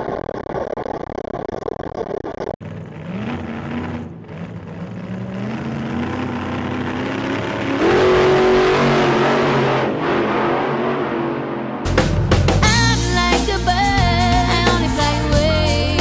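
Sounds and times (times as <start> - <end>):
steady road noise: 0.0 - 12.7
car engine accelerating: 2.3 - 12.6.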